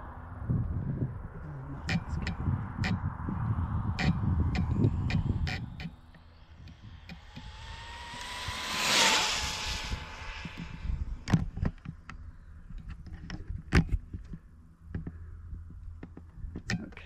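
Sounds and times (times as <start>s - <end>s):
rc car motor whine passing: 1.9s - 11.8s.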